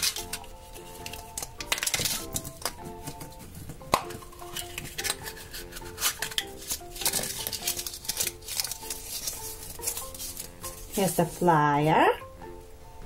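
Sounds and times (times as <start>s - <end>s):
light background melody: 0.0s - 13.0s
plastic capsule clicks and rattles: 1.0s - 2.8s.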